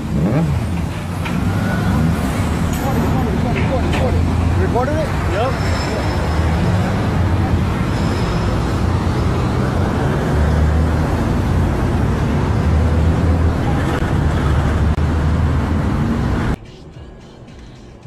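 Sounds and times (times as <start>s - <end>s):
heavy vehicle engine hum: 0.0s - 18.0s
highway traffic noise: 0.0s - 18.0s.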